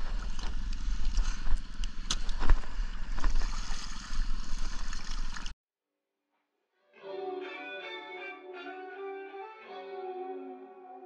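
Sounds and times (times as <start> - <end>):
water splashing: 0.0 - 5.5.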